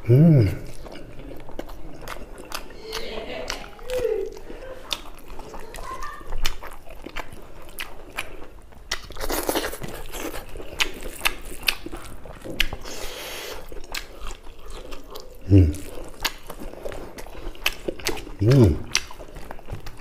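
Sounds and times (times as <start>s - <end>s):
close-miked chewing: 0.0s - 20.0s
wet lip smacks: 17.7s - 19.2s.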